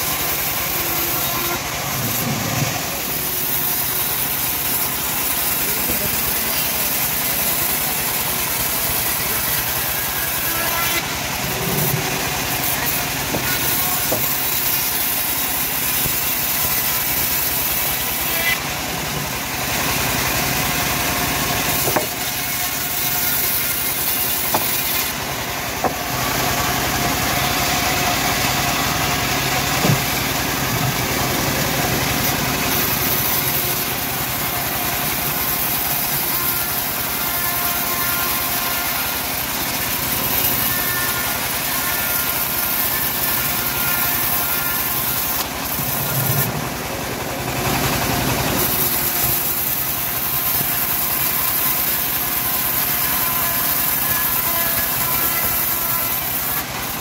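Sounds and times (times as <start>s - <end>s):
band sawmill sawing wood: 0.0s - 57.0s
timber knocks: 21.8s - 22.2s, 24.4s - 25.0s, 25.8s - 26.1s, 29.7s - 31.0s.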